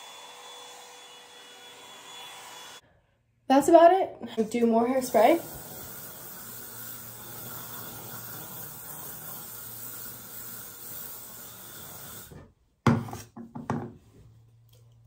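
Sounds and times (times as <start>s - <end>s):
aerosol can spraying: 5.0s - 12.2s.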